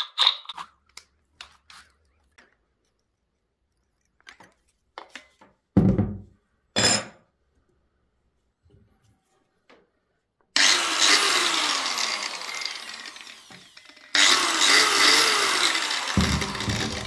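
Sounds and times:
tools knocking on metal table: 5.8 - 6.2, 16.2 - 17.0.

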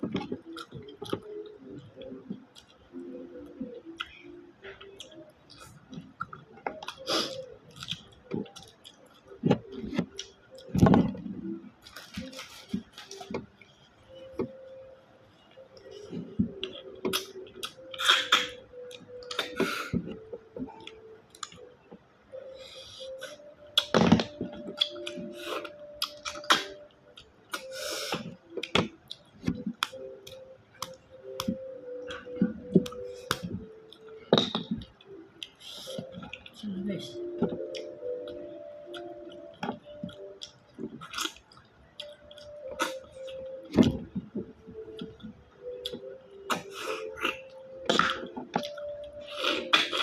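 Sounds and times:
chewing: 39.8 - 44.0.

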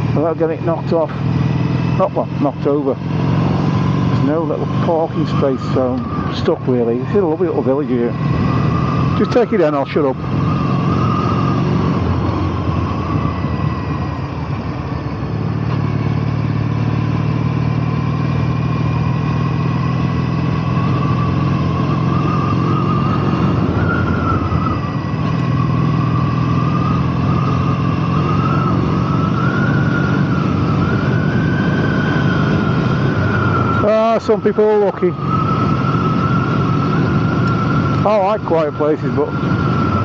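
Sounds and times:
motorcycle engine running: 0.0 - 40.0
wavering high whistle: 21.2 - 25.1, 33.3 - 40.0.

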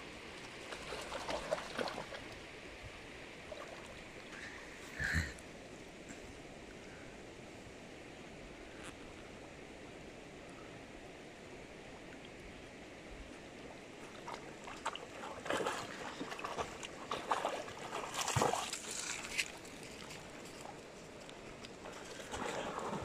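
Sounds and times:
shallow river flowing: 0.0 - 23.0
dog splashing through water: 0.6 - 2.3, 14.1 - 20.3, 21.9 - 23.0.

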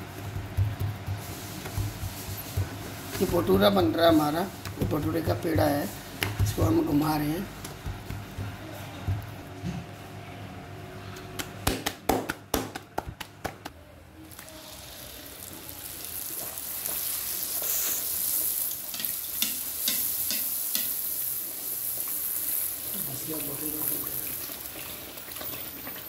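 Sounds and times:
dough frying in sizzling oil: 0.0 - 9.5, 14.2 - 26.0
oil crackles and pops: 13.2 - 26.0.

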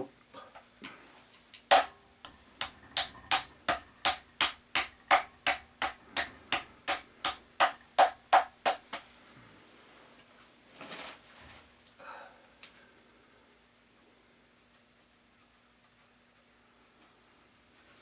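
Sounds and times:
palm slapping soft clay: 1.7 - 9.1.

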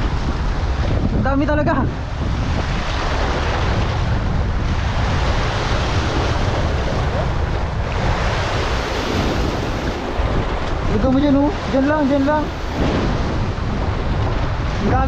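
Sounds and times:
wind on microphone: 0.0 - 15.0
sea water lapping: 1.9 - 15.0.

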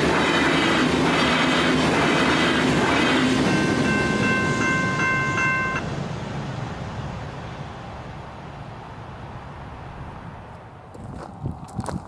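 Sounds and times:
passing diesel train rumble: 0.0 - 12.0
level crossing bell ringing: 3.5 - 5.8.

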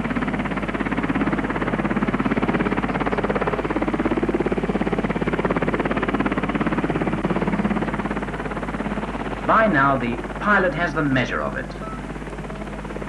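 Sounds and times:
helicopter rotor chopping: 0.0 - 13.0.

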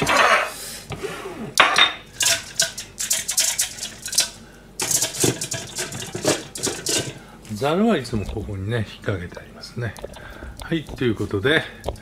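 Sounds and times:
dishes and utensils clinking: 0.0 - 0.5, 1.6 - 7.2.

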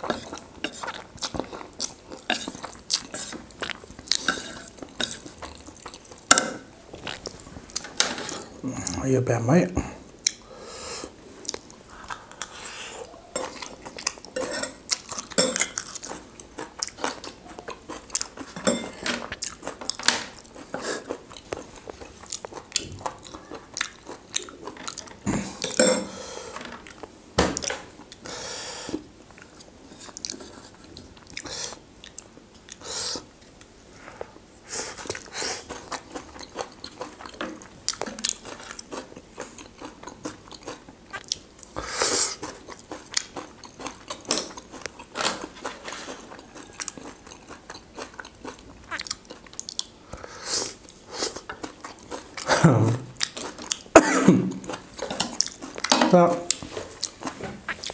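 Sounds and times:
chewing and biting: 0.0 - 6.3, 13.4 - 25.8, 34.9 - 50.0, 53.2 - 53.9, 54.6 - 57.9.

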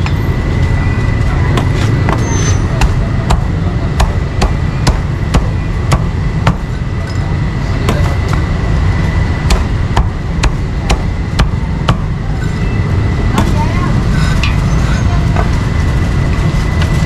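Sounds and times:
low background rumble: 0.0 - 17.0
meat cleaver chopping meat: 2.8 - 6.7, 9.4 - 12.1.

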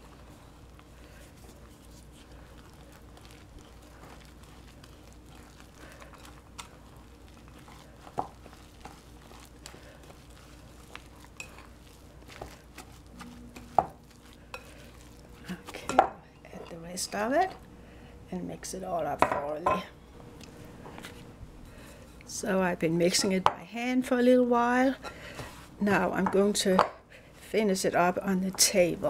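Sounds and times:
fork stirring in glass bowl: 1.1 - 17.6.

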